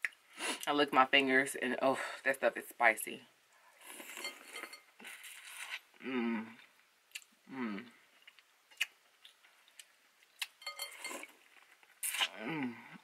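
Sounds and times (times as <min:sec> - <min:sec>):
wet chewing and lip smacks: 0:08.2 - 0:10.6.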